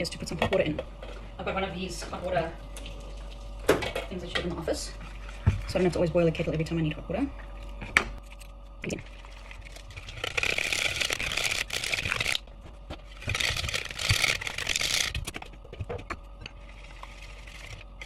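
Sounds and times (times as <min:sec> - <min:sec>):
whisk scraping plastic bowl: 0:13.2 - 0:18.0.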